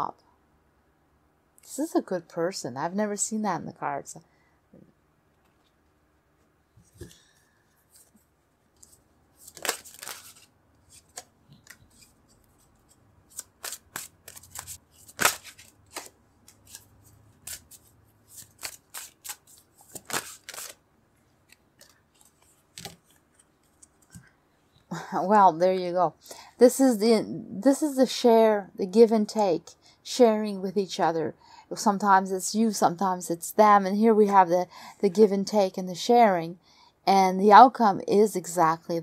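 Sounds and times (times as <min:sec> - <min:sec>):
cards rustling: 0:06.8 - 0:20.8, 0:21.4 - 0:24.3.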